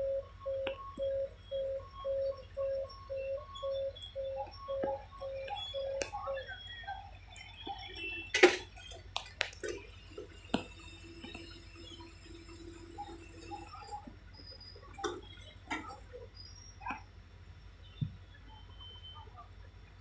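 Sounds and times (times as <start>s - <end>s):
level crossing warning beeper: 0.0s - 16.8s
sharp clicks: 4.0s - 6.5s, 7.3s - 14.1s.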